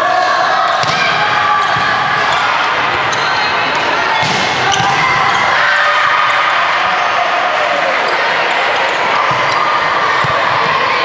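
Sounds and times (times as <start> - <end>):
echoing voices in a gym: 0.0 - 11.0
volleyball hits: 0.7 - 5.6, 9.2 - 10.9.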